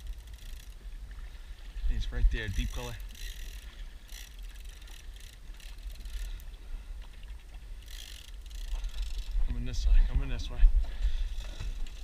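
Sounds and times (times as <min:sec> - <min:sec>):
water washing against hull: 0:00.0 - 0:10.1
wind rumbling on microphone: 0:08.7 - 0:12.0.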